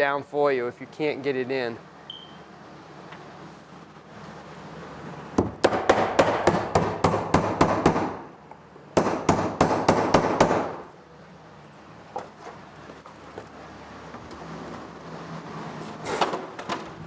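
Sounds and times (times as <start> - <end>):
hammer striking wooden board: 5.4 - 8.2, 9.0 - 10.8.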